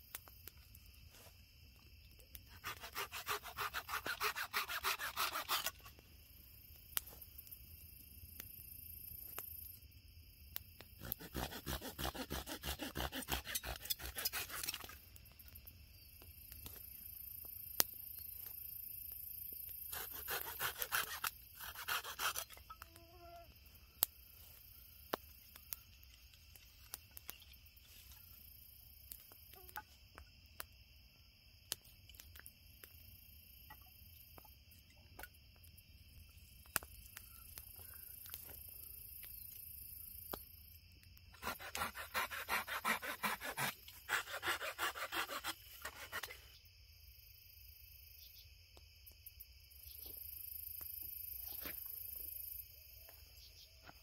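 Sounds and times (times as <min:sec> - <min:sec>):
campfire crackling: 0:00.0 - 0:12.1, 0:14.3 - 0:41.6
insects chirping: 0:00.0 - 0:54.0
rasping strokes on wooden stick: 0:02.5 - 0:05.8, 0:11.0 - 0:14.9, 0:19.9 - 0:22.6, 0:41.4 - 0:46.4.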